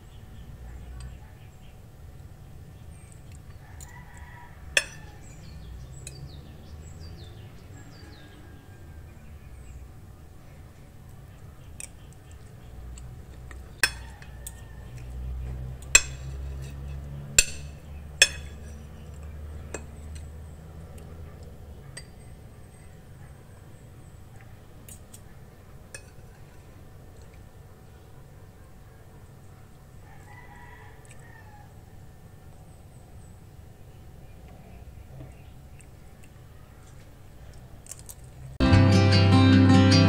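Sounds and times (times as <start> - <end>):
cutlery clinking on a plate: 4.8 - 5.1, 13.8 - 14.1, 15.9 - 18.8, 25.9 - 26.3.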